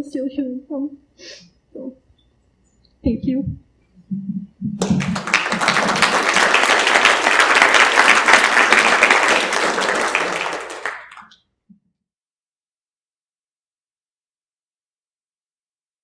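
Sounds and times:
audience applauding: 4.8 - 11.4.

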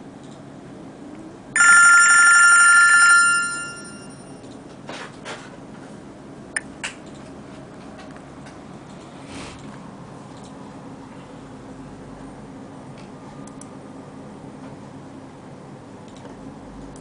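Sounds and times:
phone trilling ringtone: 1.6 - 4.4.

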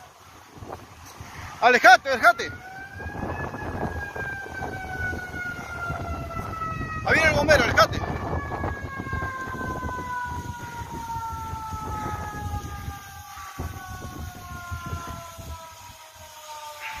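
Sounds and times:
fire engine siren: 0.0 - 17.0.

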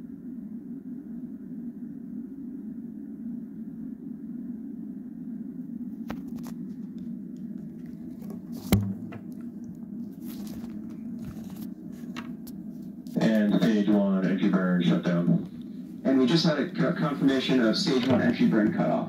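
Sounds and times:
low hum: 0.0 - 19.0
sharp knock: 8.7 - 9.2.

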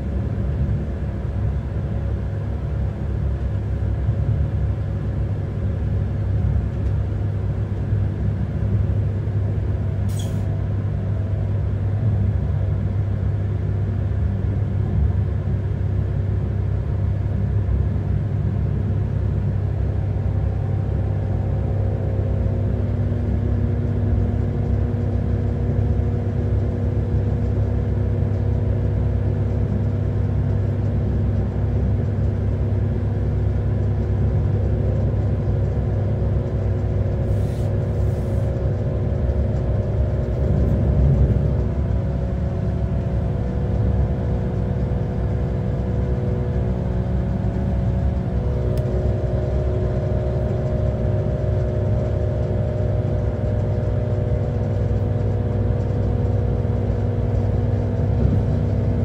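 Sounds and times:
diesel engine humming: 0.0 - 59.0
low rolling rumble: 17.6 - 25.8, 30.7 - 59.0.

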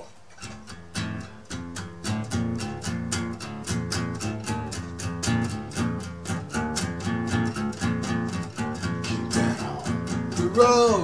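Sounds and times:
guitar chords strummed: 0.4 - 11.0.

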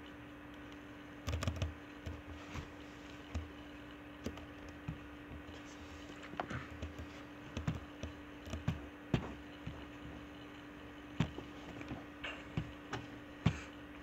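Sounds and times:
low electrical hum: 0.0 - 14.0
computer keys and mouse clicks: 0.6 - 2.3, 6.8 - 8.8.

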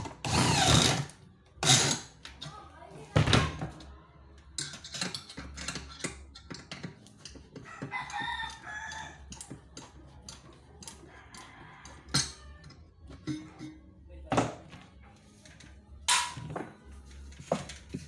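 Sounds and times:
rooster crowing: 7.6 - 9.5, 10.8 - 12.7.

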